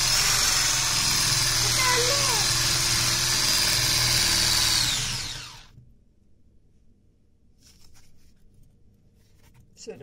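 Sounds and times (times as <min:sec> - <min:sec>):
electric hand mixer whining: 0:00.0 - 0:05.8.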